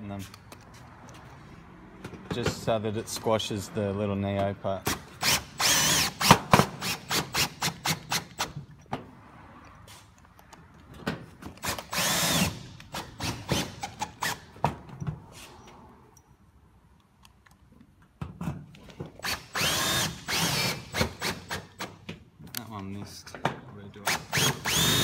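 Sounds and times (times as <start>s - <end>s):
cordless drill motor whirring: 5.2s - 8.4s, 11.6s - 14.4s, 19.2s - 21.5s, 24.1s - 25.0s.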